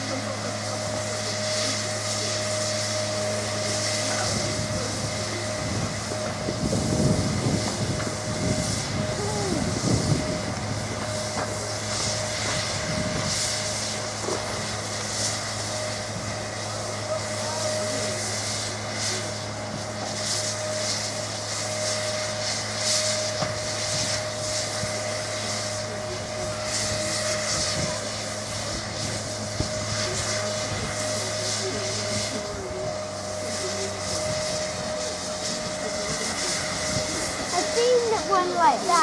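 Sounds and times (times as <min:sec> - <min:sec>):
mechanical hum with whine: 0:00.0 - 0:39.0
steam hiss: 0:00.0 - 0:39.0.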